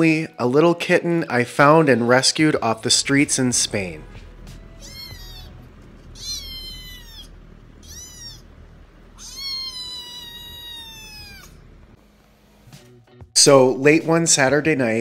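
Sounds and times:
kitten meowing: 0:03.3 - 0:12.0.

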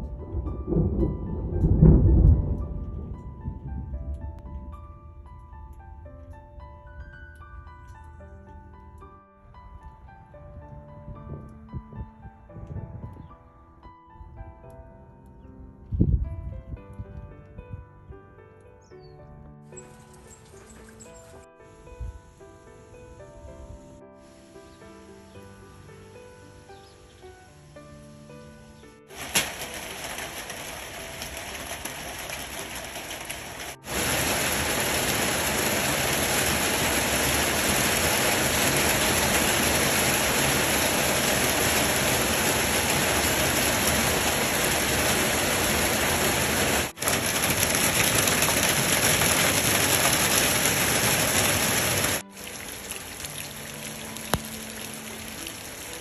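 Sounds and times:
heavy rain falling: 0:29.1 - 0:56.0
water pouring off roof splashing: 0:29.1 - 0:56.0.

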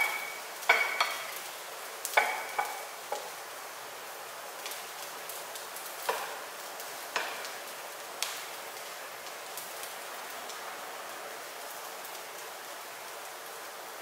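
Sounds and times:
spatula knocking on wok: 0:00.0 - 0:01.4, 0:02.1 - 0:03.3
fried rice sizzling in a wok: 0:00.0 - 0:14.0.

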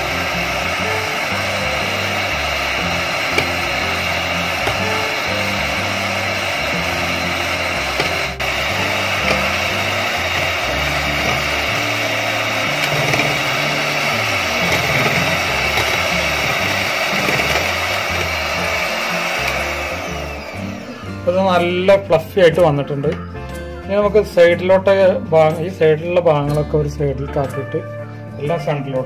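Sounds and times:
electric hand beater whirring: 0:00.0 - 0:22.0
background music: 0:00.0 - 0:29.0.

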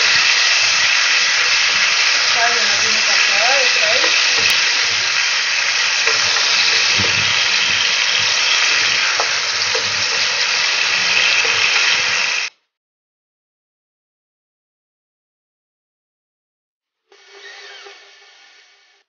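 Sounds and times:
chicken sizzling in hot oil: 0:00.0 - 0:12.5
wooden spatula scraping a pan: 0:00.0 - 0:12.5.

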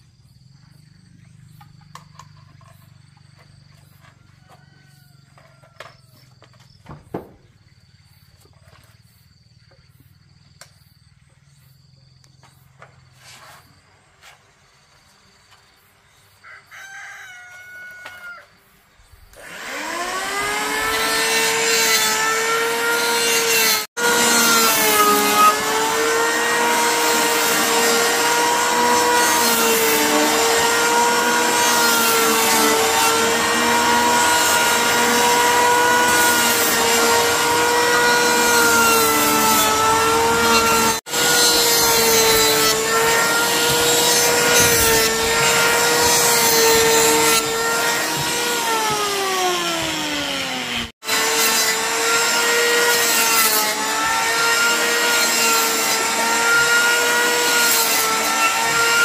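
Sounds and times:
rooster crowing: 0:04.0 - 0:06.1, 0:16.4 - 0:18.7
electric planer whining: 0:19.4 - 0:59.0
planer shaving log rasping: 0:19.4 - 0:59.0.

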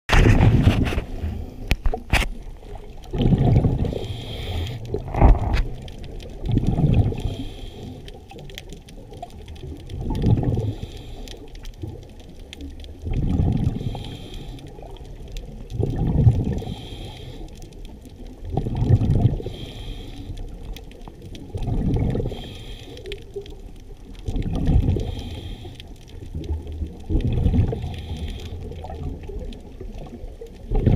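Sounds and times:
exhaled air bubbling underwater: 0:00.1 - 0:30.9
regulator inhalation hiss: 0:04.0 - 0:04.8.

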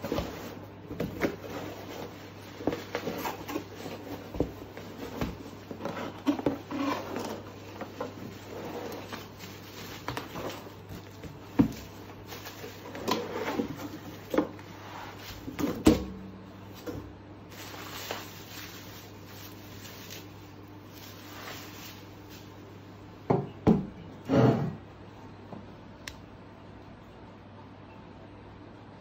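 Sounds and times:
cardboard and bubble wrap rustling: 0:00.0 - 0:22.7.

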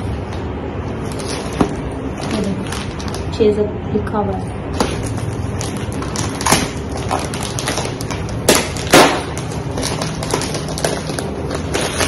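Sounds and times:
plastic wrapper crinkling: 0:01.0 - 0:03.4, 0:04.8 - 0:12.0.

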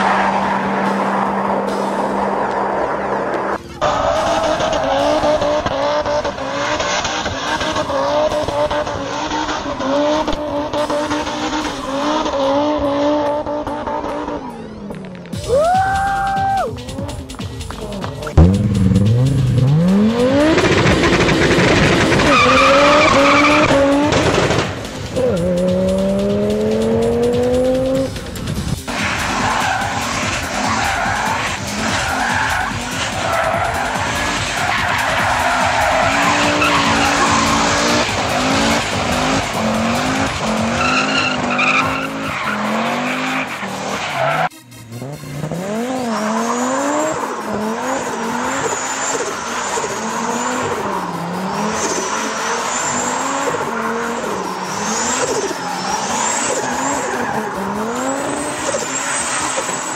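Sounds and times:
car engine revving: 0:00.0 - 0:15.2, 0:16.8 - 0:59.9
tyres squealing: 0:28.9 - 0:44.5.

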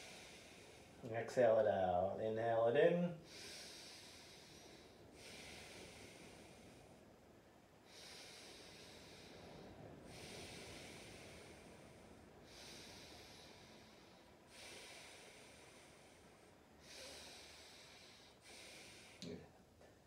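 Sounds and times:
faint breaths through the nose: 0:00.0 - 0:01.0, 0:03.2 - 0:19.2.

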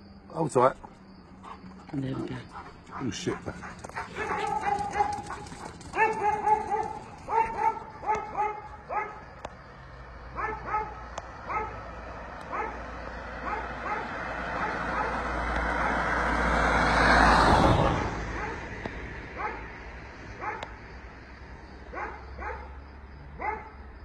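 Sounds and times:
car engine and tyres approaching: 0:00.0 - 0:24.0
dogs barking: 0:01.3 - 0:09.4, 0:10.2 - 0:16.3, 0:18.2 - 0:20.8, 0:21.8 - 0:23.8.

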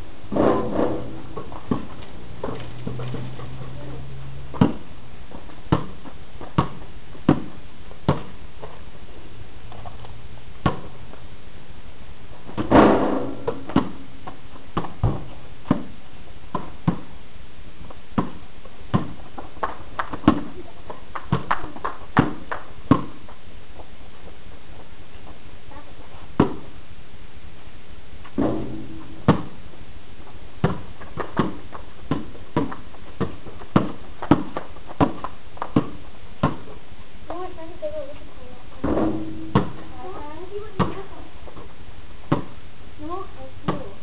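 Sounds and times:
sharp taps and thumps: 0:00.3 - 0:03.6, 0:04.5 - 0:08.8, 0:10.6 - 0:11.0, 0:12.5 - 0:17.1, 0:21.1 - 0:23.2, 0:26.4 - 0:26.7, 0:28.3 - 0:29.6, 0:30.6 - 0:36.8, 0:38.8 - 0:39.9, 0:42.3 - 0:42.6.

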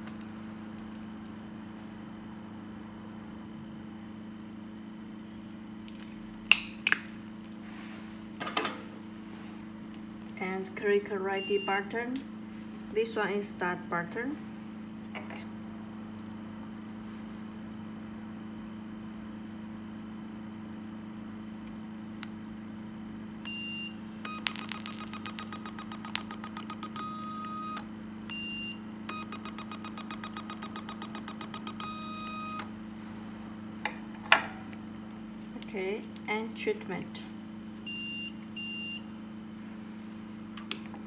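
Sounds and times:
steady low hum: 0:00.0 - 0:41.0
rapid clicking beeps: 0:24.3 - 0:27.8, 0:29.1 - 0:32.6.

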